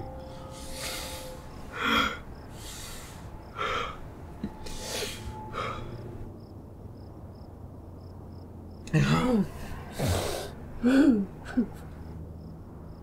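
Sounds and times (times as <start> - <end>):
man breathing heavily: 0.4 - 6.3.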